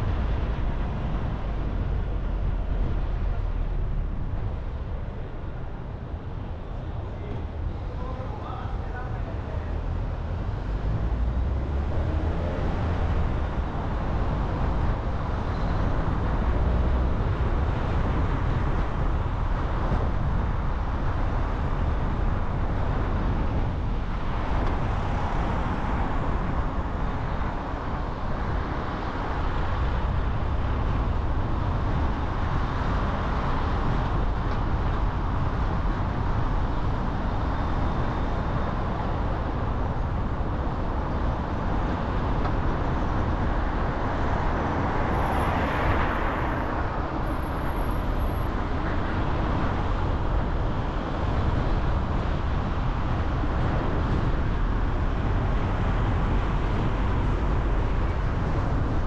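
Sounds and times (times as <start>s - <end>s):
tyre road rumble: 0.0s - 59.0s.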